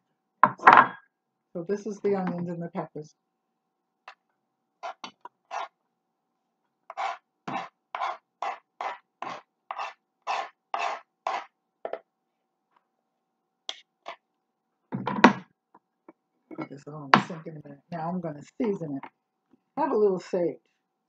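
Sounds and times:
knife scraping a cutting board: 0:04.8 - 0:05.7, 0:06.9 - 0:11.5.

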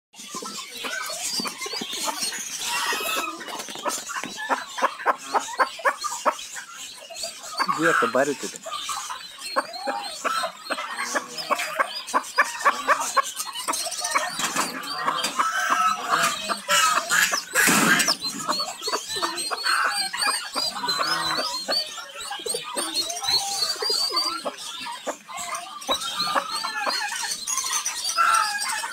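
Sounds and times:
chicks peeping: 0:00.2 - 0:28.9.

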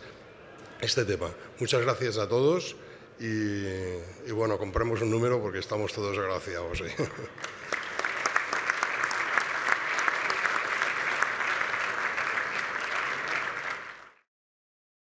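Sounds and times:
audience applauding: 0:07.3 - 0:14.2.

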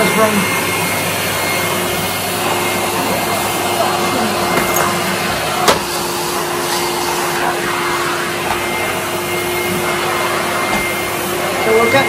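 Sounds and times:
vacuum cleaner running: 0:00.0 - 0:12.0.

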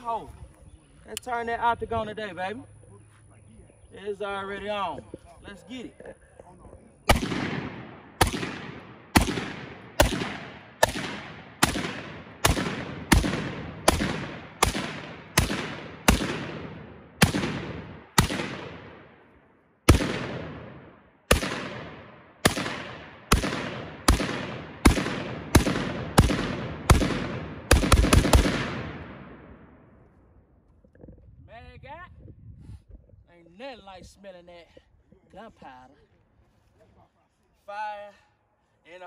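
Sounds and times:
rifle shots with echo: 0:07.1 - 0:30.0.

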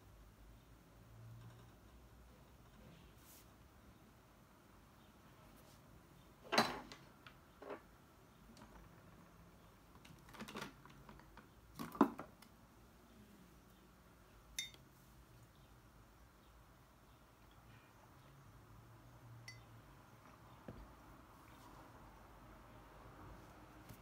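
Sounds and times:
mug clinking: 0:14.6 - 0:14.8, 0:19.5 - 0:19.7.

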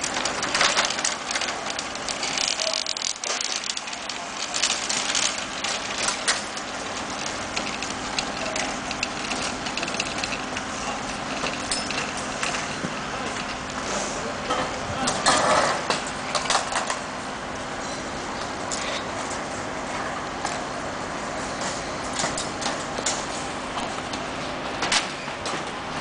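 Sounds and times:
metal trolleys rattling on concrete: 0:00.0 - 0:17.0.

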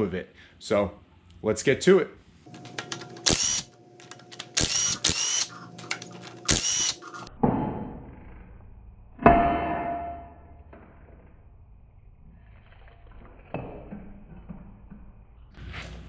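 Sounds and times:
cordless impact wrench running: 0:02.5 - 0:07.3.

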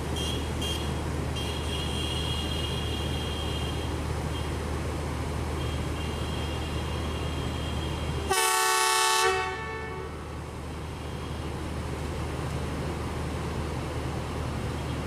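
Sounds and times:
low engine hum: 0:00.0 - 0:15.0
locomotive horn blast: 0:05.6 - 0:10.3.

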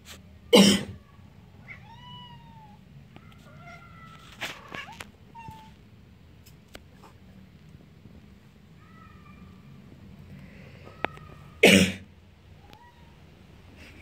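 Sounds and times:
cat meowing: 0:00.9 - 0:05.8.

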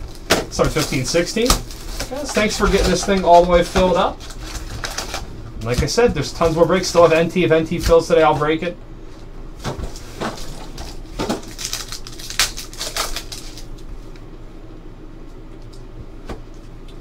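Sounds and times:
foil wrapper crinkling and tearing: 0:00.0 - 0:05.8, 0:09.8 - 0:14.2.

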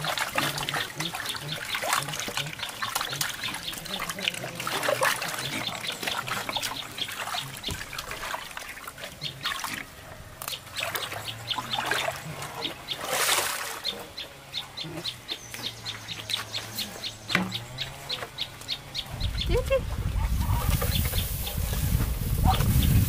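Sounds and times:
hand scrubbing trough: 0:00.0 - 0:14.1
water sloshing in a trough: 0:00.0 - 0:18.6.

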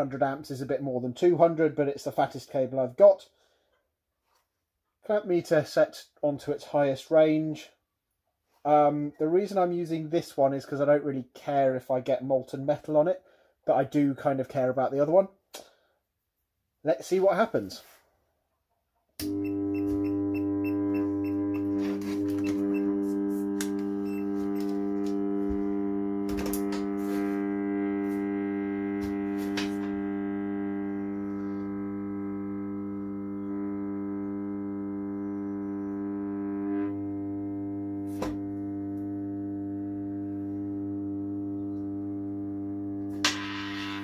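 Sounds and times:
transformer buzzing hum: 0:19.2 - 0:44.0.

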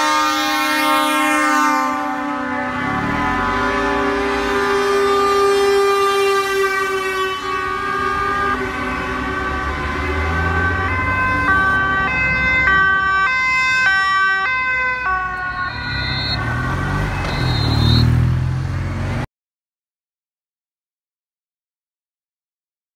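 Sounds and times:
truck air horn blaring: 0:00.0 - 0:18.2
two-tone emergency siren: 0:00.0 - 0:18.2
motorcycle engine passing: 0:15.6 - 0:19.2.

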